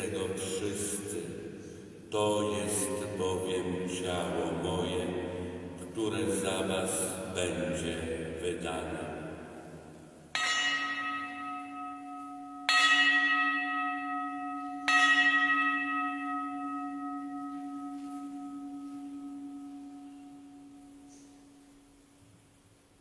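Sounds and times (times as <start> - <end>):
altar bell ringing: 10.3 - 21.7.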